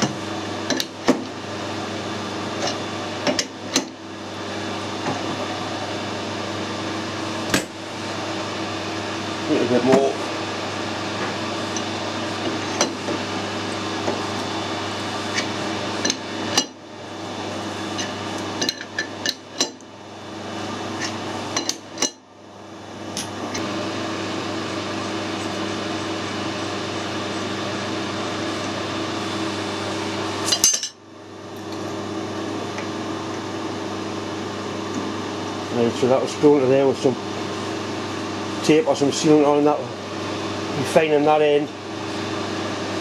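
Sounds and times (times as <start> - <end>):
machine shop hum: 0.0 - 43.0.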